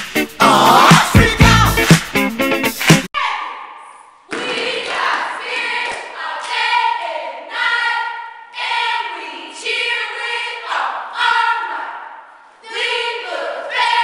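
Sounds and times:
girls chanting a cheer: 0:03.2 - 0:14.0.

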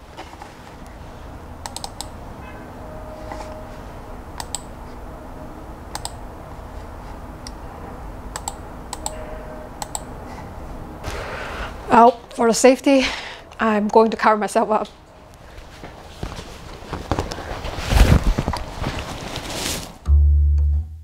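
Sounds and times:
steady low hum: 0:00.0 - 0:20.4
laptop keyboard clicks: 0:01.6 - 0:02.1, 0:04.4 - 0:04.6, 0:08.4 - 0:09.2
faint short tone: 0:02.4 - 0:04.2.

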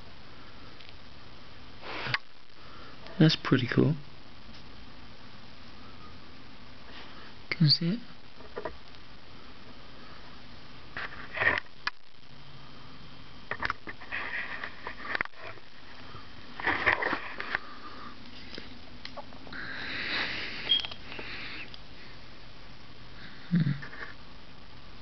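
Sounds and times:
breathing and sniffing: 0:01.8 - 0:03.0, 0:06.8 - 0:07.4, 0:19.5 - 0:22.3.

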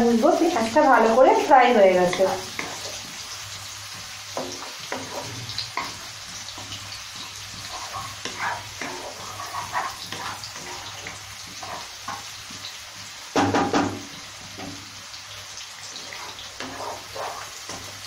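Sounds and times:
onions sizzling in oil: 0:00.0 - 0:18.0
wooden spatula scraping pan: 0:01.0 - 0:03.2, 0:04.3 - 0:12.8, 0:15.9 - 0:18.0.

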